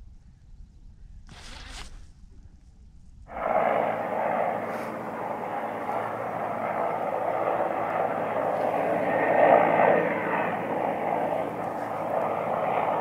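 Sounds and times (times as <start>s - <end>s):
helicopter flying overhead: 3.3s - 13.0s.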